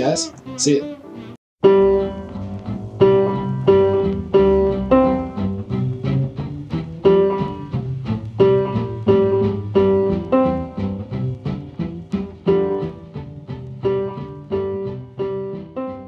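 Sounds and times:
plucked background music: 0.0s - 16.0s.

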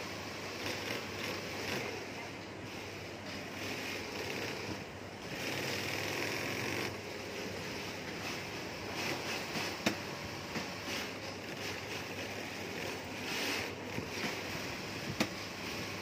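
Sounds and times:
sewing machine stitching: 0.0s - 16.0s
steady hiss: 0.0s - 16.0s.

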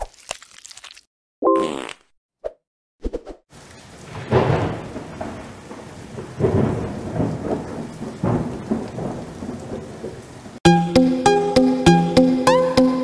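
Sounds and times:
rain hiss: 3.5s - 10.6s
rumbling thunder: 4.0s - 10.6s.

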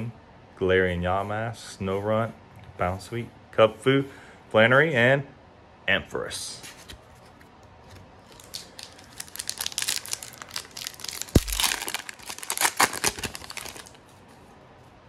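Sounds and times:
foil wrapper crinkling and tearing: 8.2s - 14.0s.

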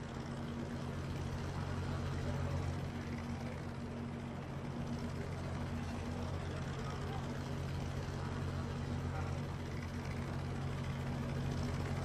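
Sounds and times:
helicopter engine and rotor drone: 0.0s - 12.0s.

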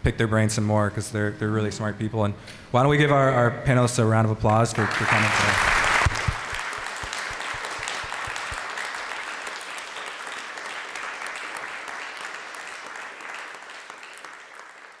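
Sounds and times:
audience applauding: 4.5s - 15.0s.

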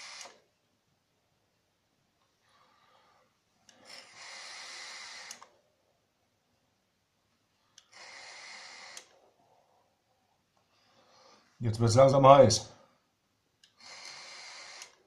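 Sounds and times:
breathy rushes of vaping: 2.4s - 5.5s, 7.8s - 9.2s, 13.7s - 15.0s.

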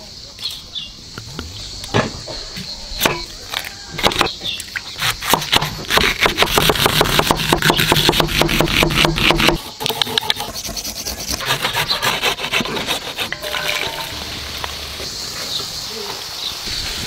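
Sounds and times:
knife chopping onion on board: 5.2s - 9.6s.

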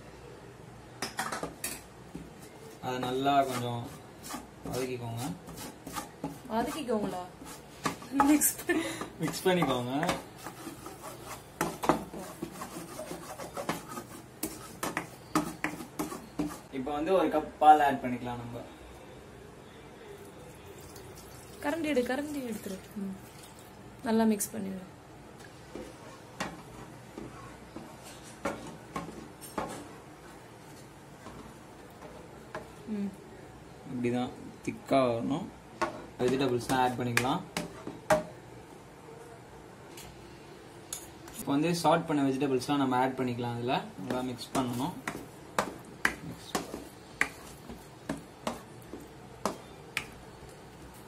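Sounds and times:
plastic spoon scraping a pan: 3.4s - 8.4s, 9.2s - 16.7s.

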